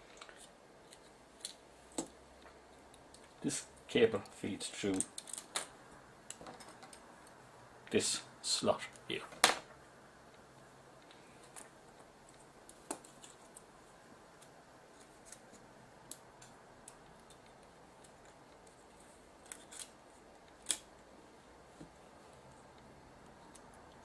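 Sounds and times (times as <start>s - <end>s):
small metal and plastic parts clicking: 4.9s - 5.7s.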